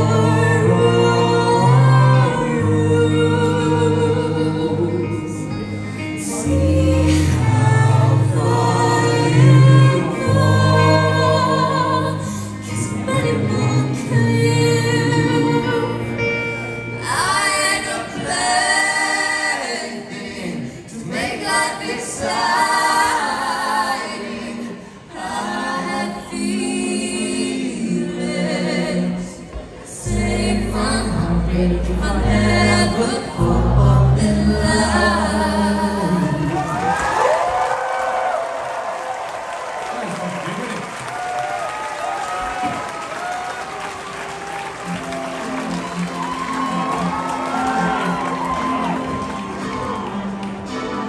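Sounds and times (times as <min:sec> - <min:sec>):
backing voices singing: 0:00.0 - 0:16.2, 0:17.0 - 0:37.4
woman singing lead: 0:00.0 - 0:37.4.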